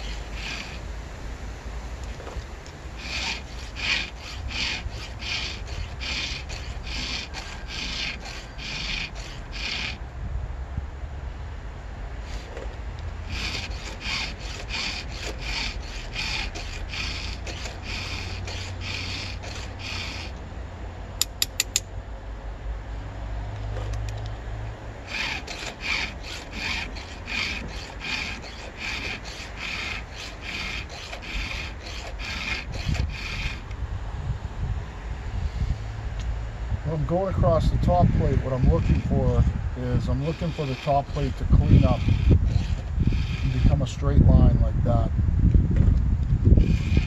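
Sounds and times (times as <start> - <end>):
hand file rasping on chain: 0.0 - 0.8, 3.0 - 10.0, 13.3 - 20.4, 25.1 - 33.7, 39.9 - 43.8, 46.6 - 47.0
sharp clicks: 21.2 - 21.9.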